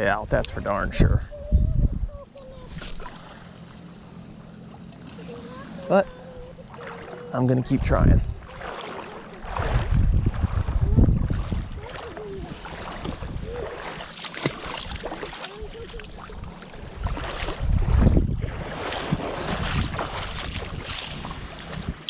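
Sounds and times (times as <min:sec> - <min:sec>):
wind buffeting microphone: 0:00.0 - 0:03.0, 0:07.6 - 0:22.0
water lapping at shore: 0:00.0 - 0:22.0.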